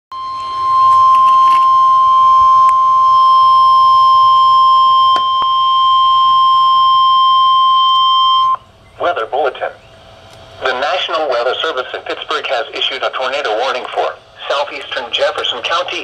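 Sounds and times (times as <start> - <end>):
long warning beep: 0.1 - 9.0.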